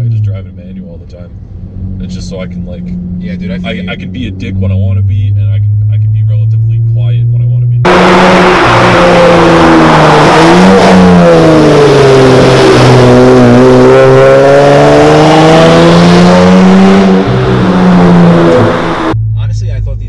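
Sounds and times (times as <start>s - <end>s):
car driving past with loud exhaust: 7.9s - 19.2s.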